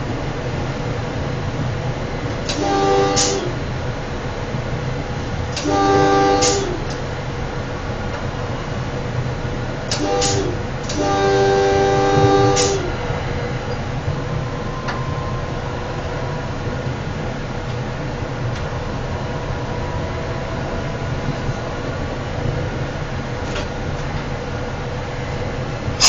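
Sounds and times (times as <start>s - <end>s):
train rumbling on rails: 0.0s - 26.0s
train air horn blasts: 2.4s - 3.7s, 5.5s - 7.0s, 9.9s - 13.8s.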